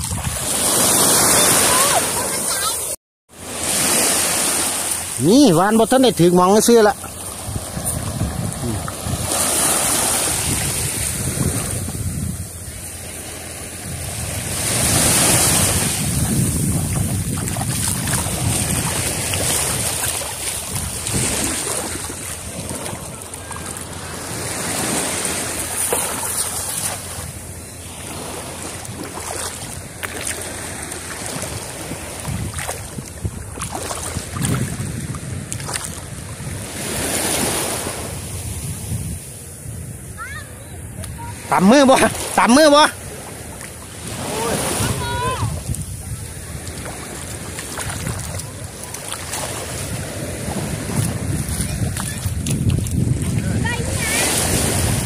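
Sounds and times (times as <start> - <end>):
wind buffeting microphone: 0.0 - 2.7, 5.7 - 25.9, 26.5 - 41.6, 43.0 - 55.0
water splashes: 0.0 - 38.8, 40.2 - 55.0
small waves washing in shallows: 0.0 - 55.0.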